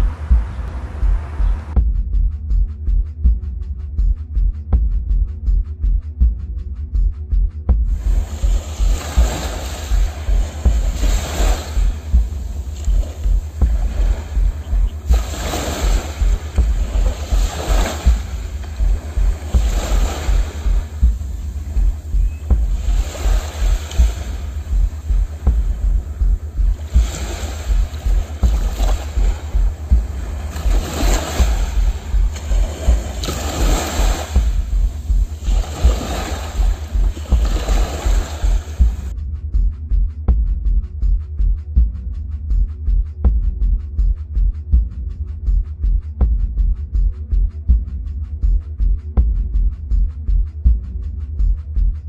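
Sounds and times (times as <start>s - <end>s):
low pulsing bass music: 0.0s - 52.0s
low rumble: 0.0s - 52.0s
small waves breaking on beach: 8.0s - 21.8s, 22.6s - 26.1s, 26.8s - 39.1s.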